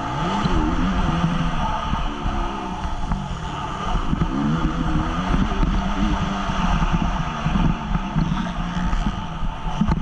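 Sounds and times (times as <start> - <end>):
motocross bike engine revving: 0.0 - 10.0
wind buffeting microphone: 0.0 - 10.0.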